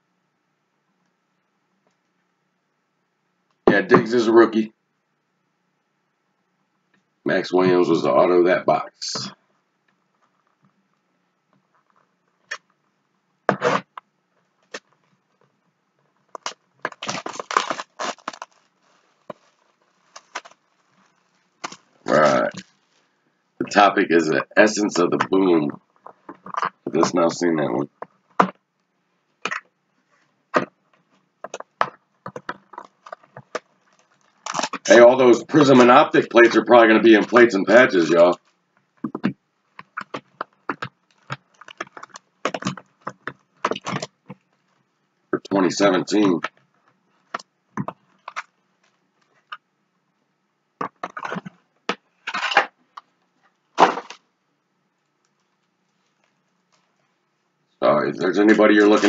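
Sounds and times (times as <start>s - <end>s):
card packs crinkling: 16.4s - 23.0s, 31.5s - 38.4s, 53.8s - 54.2s, 58.4s - 59.0s.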